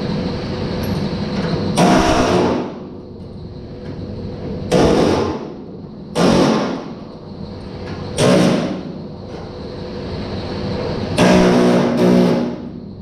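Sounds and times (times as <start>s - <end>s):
power tool bursts on sheet metal: 1.8s - 2.8s, 4.7s - 5.6s, 6.2s - 7.0s, 8.2s - 8.9s, 11.2s - 12.8s.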